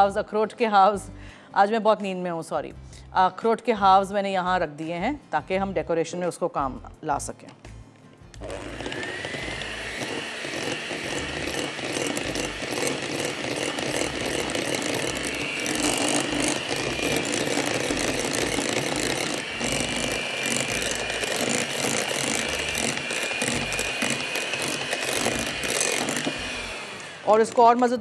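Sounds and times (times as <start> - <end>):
electric hand mixer whining: 8.4 - 27.9.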